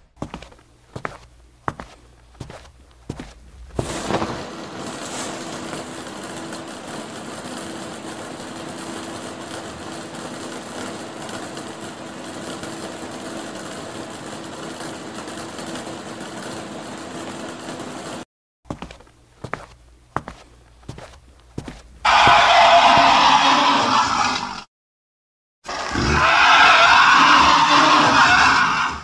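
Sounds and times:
electric fan whirring: 0:00.2 - 0:23.2.

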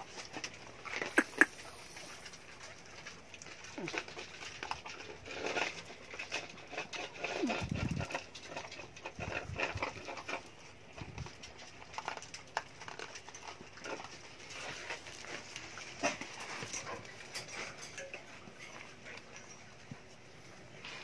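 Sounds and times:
dog paws clicking and scuffing: 0:00.0 - 0:21.0.

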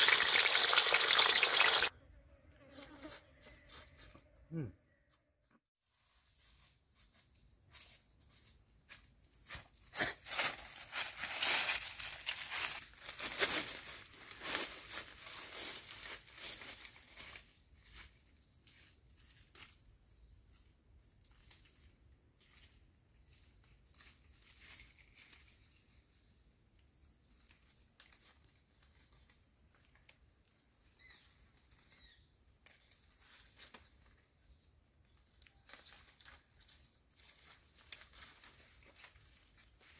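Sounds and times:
footsteps crunching through dry leaves: 0:05.8 - 0:19.5, 0:23.5 - 0:26.0, 0:35.5 - 0:39.9
rustling undergrowth: 0:05.8 - 0:39.9.

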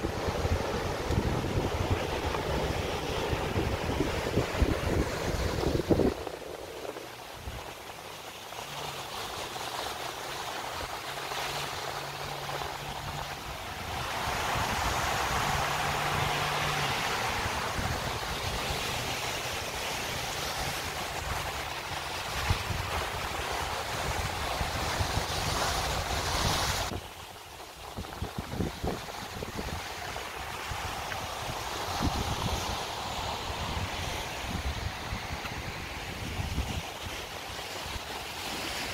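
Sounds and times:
wind buffeting microphone: 0:00.0 - 0:07.8, 0:12.9 - 0:19.7, 0:27.8 - 0:38.9
surf breaking over rocks: 0:00.0 - 0:38.9.

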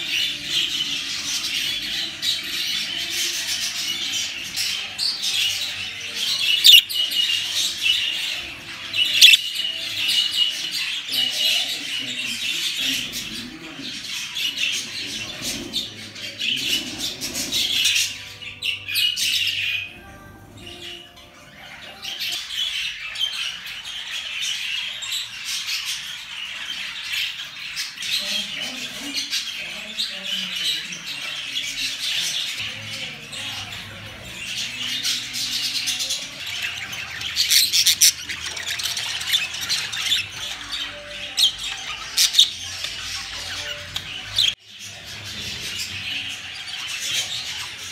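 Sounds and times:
budgerigars chattering and warbling: 0:00.0 - 0:47.9
budgerigar squawks: 0:06.6 - 0:06.9, 0:09.0 - 0:09.4.

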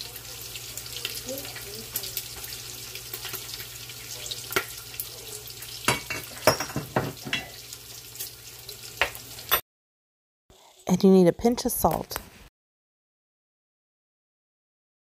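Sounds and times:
bacon sizzling and crackling: 0:00.0 - 0:09.6
metal cup clinking on glass bowl: 0:05.9 - 0:07.6.

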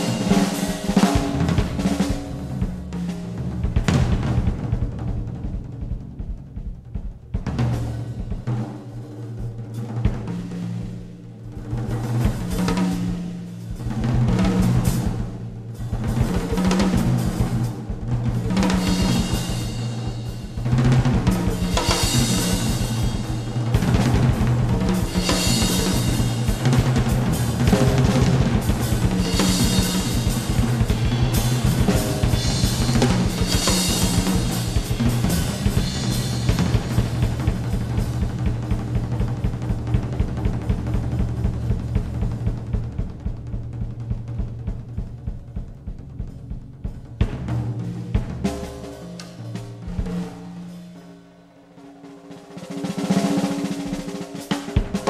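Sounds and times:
busy drum kit: 0:00.0 - 0:55.0
steady bass line: 0:18.0 - 0:47.4.

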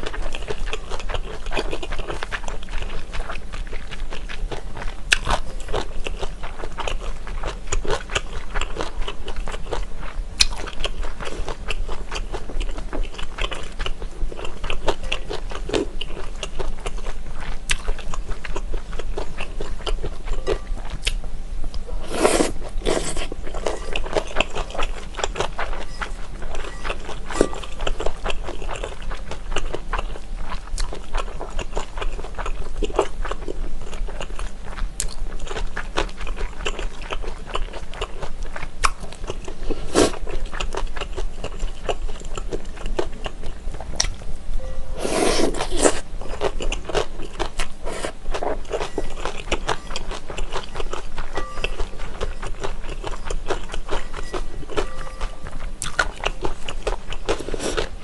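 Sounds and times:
slurping noodles: 0:22.0 - 0:23.4, 0:45.0 - 0:46.0
wet sticky chewing: 0:45.0 - 0:57.9.

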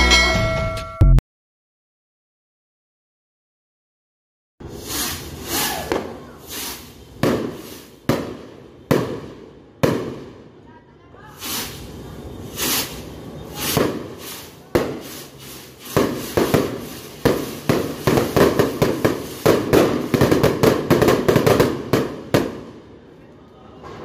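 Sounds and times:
sky rockets popping and cracking: 0:12.6 - 0:22.7.

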